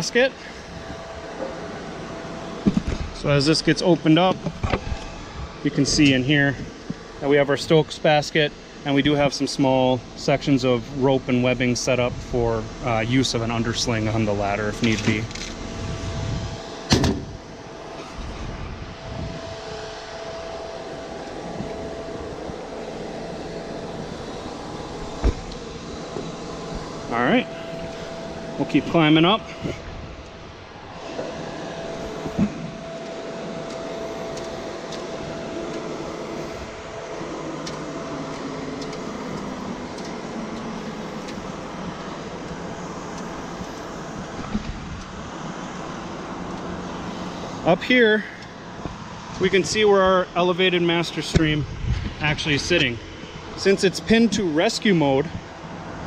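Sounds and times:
truck engine droning: 0.0s - 56.0s
thump: 16.9s - 17.3s, 25.2s - 25.4s.

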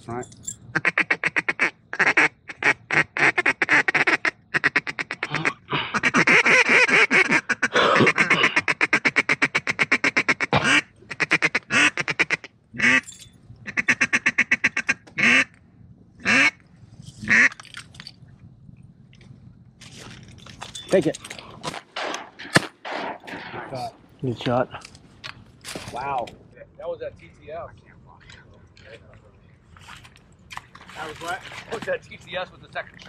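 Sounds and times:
duck call clucking and quacking: 0.7s - 13.0s, 13.7s - 15.6s, 16.2s - 16.6s, 17.2s - 17.5s.

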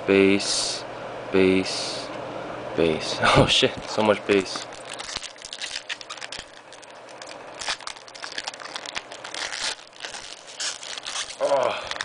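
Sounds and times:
foil wrapper crinkling: 3.6s - 12.0s.

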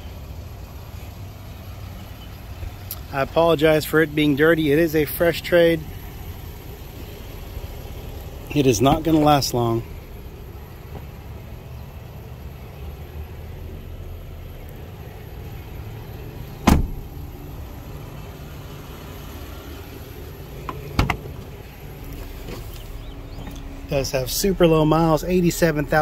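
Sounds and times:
low steady rumble: 0.0s - 26.0s
car door slamming: 16.5s - 17.3s, 20.6s - 21.6s
car door handle and latch clicks: 16.6s - 17.0s, 20.6s - 21.5s.

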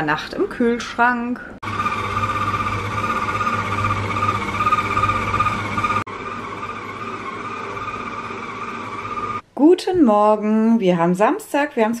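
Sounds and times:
stand mixer motor whining: 1.6s - 9.4s.

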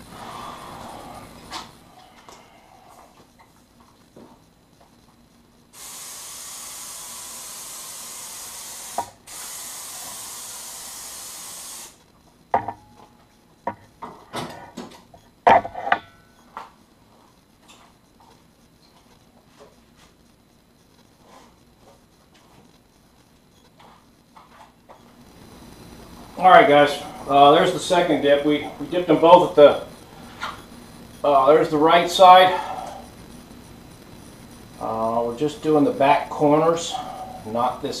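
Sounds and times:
spray gun hissing: 5.7s - 12.0s
sharp knocks and clatters: 12.5s - 16.8s.

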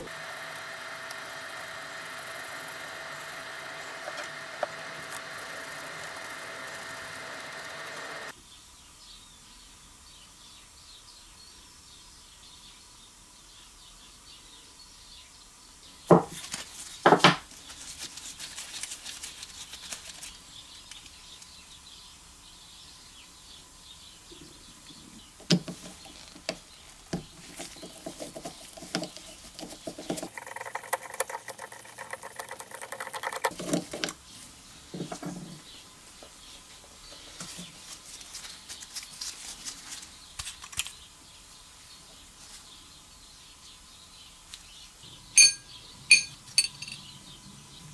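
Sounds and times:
metal parts knocked on wooden bench: 45.4s - 47.0s.

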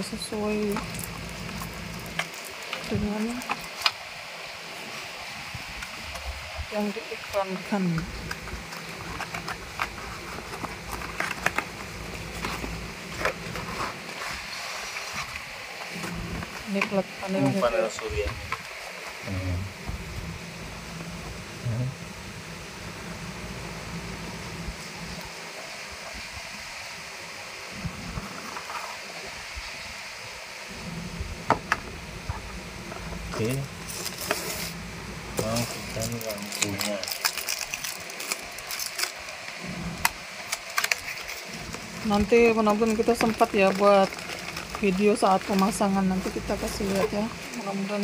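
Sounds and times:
steady hiss: 0.0s - 48.0s
cardboard packaging rustling: 8.0s - 19.2s, 33.4s - 34.8s, 35.4s - 48.0s.

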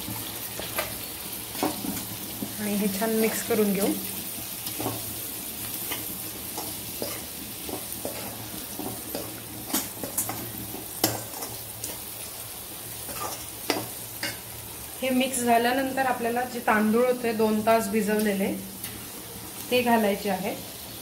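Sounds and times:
frying sizzle: 0.0s - 21.0s
spoon scraping metal pan: 5.8s - 12.0s, 13.1s - 14.4s.

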